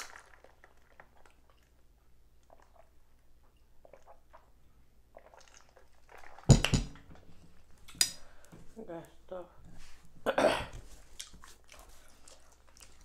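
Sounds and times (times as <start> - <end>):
tumbler knocking on table: 6.5 - 7.1.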